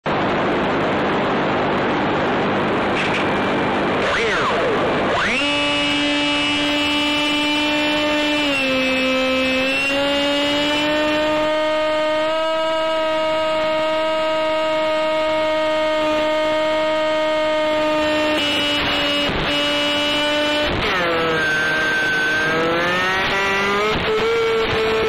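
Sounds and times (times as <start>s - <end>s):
brief crackles: 3.0s - 3.5s
model plane motor whining: 4.0s - 9.8s.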